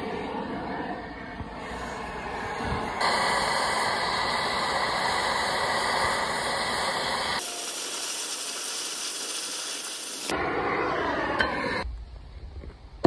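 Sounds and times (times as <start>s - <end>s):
cutting torch hissing: 2.8s - 11.9s.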